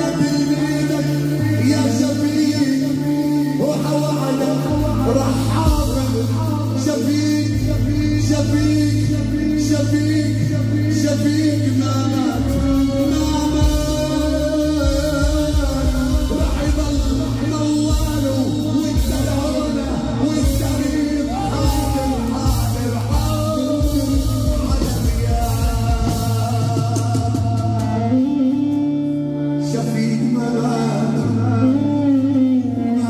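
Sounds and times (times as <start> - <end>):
man singing into a microphone: 0.0 - 33.0
sustained bass notes: 0.0 - 33.0
drum beat: 20.4 - 27.8.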